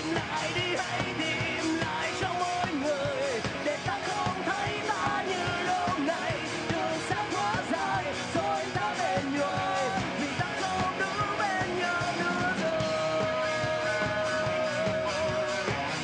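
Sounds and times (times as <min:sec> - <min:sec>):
drum beat: 0:00.0 - 0:16.0
electric guitar: 0:00.0 - 0:16.0
man singing: 0:00.0 - 0:16.0.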